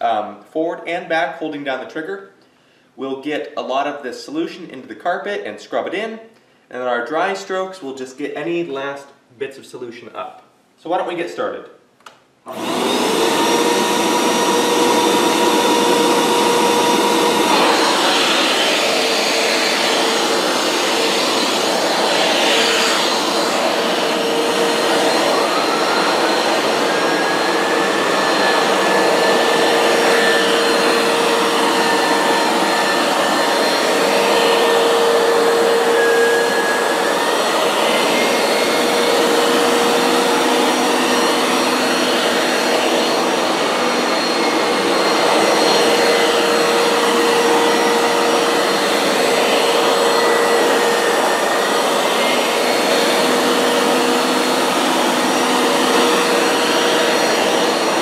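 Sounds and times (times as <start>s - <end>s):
carpet washer motor drone: 12.5s - 58.0s.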